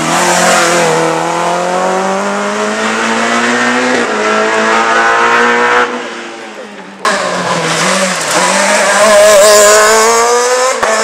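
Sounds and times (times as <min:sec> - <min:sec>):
rally car engine accelerating: 0:00.0 - 0:11.0.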